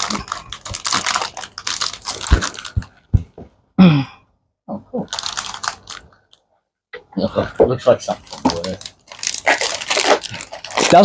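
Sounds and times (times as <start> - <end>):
plastic packaging crinkling: 0.0 - 3.1, 5.1 - 6.4, 8.1 - 11.0.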